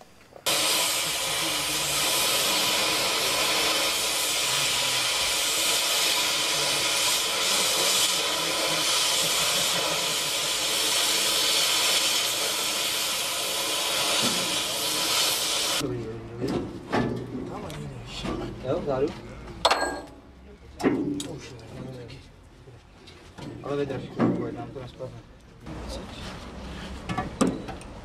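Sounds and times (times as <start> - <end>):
cutting torch hissing: 0.0 - 15.8.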